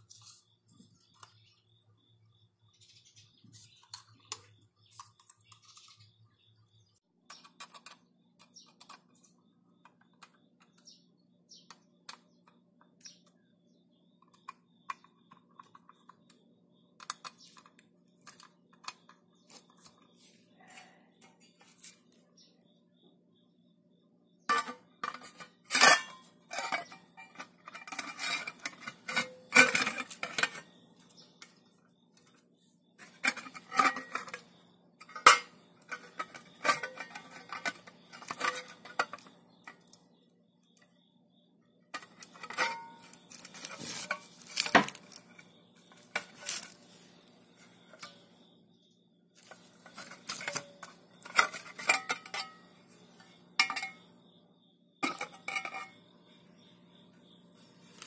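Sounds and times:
metal clinking on metal: 24.5s - 30.7s, 33.0s - 40.0s, 41.9s - 46.8s, 49.4s - 54.1s, 55.0s - 56.0s.

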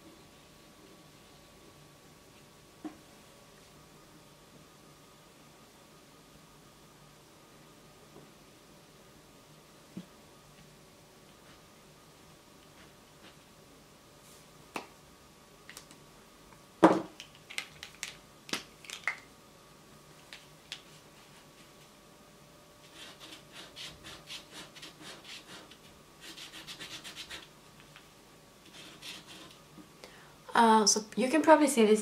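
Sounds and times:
marker scratching on paper: 22.8s - 27.5s, 28.7s - 29.6s.

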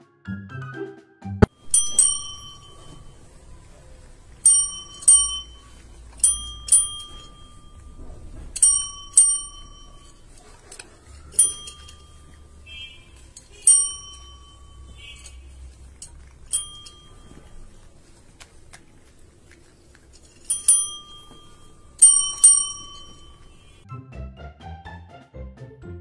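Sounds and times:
small metal bell dinging: 1.5s - 23.8s.

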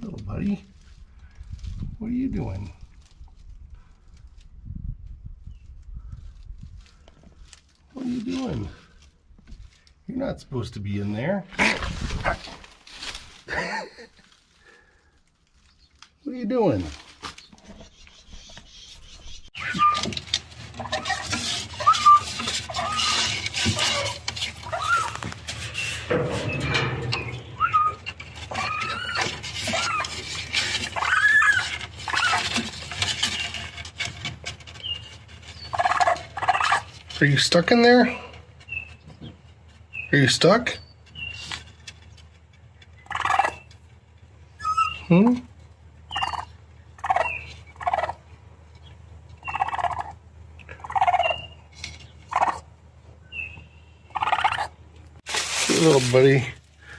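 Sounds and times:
scuffling rustle: 11.5s - 17.9s, 19.7s - 37.8s, 55.2s - 56.9s
baby raccoon crying: 19.6s - 20.1s, 21.0s - 25.2s, 27.6s - 30.2s, 30.9s - 32.5s, 44.6s - 45.1s.

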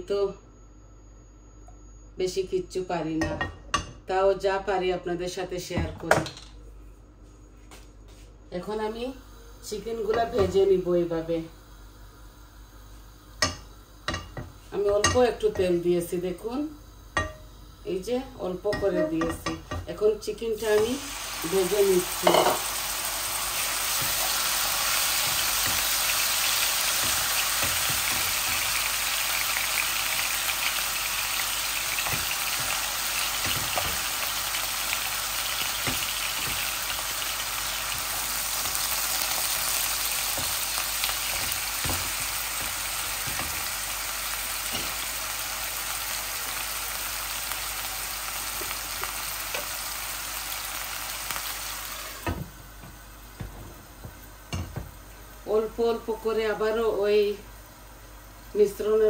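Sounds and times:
chicken sizzling in frying pan: 20.5s - 52.4s.

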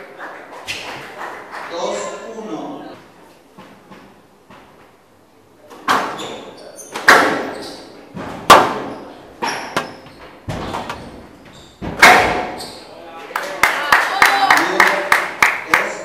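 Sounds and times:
squash ball hits echoing: 7.0s - 7.6s, 8.2s - 11.2s, 11.8s - 12.8s.

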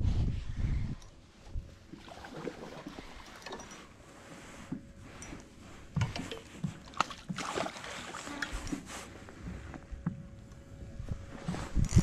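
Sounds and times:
faint wind: 0.0s - 12.0s
water noise: 1.3s - 9.6s.

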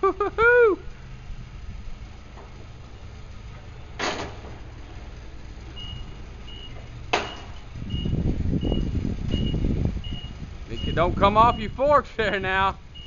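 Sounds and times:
forklift engine running: 0.0s - 13.0s
reverse alarm beeps: 5.8s - 11.9s
sharp knocks: 7.1s - 7.6s.

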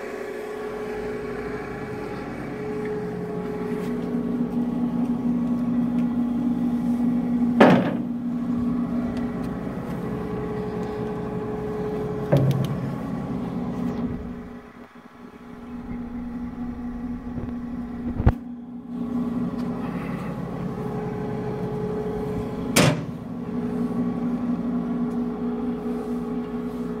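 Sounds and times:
mixer motor humming: 0.0s - 27.0s.

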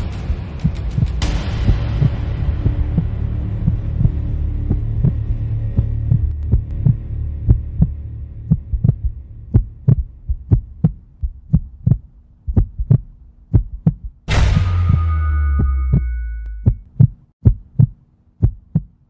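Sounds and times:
heartbeat: 0.0s - 14.3s, 14.9s - 19.0s
low hum: 0.0s - 18.9s
sudden loud hit: 14.3s - 16.8s
held high tones: 14.3s - 16.9s.

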